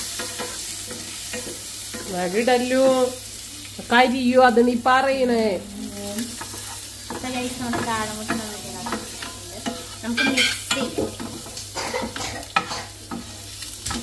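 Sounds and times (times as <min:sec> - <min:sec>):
light sizzle of frying: 0:00.0 - 0:14.0
spatula scraping a frying pan: 0:06.1 - 0:14.0.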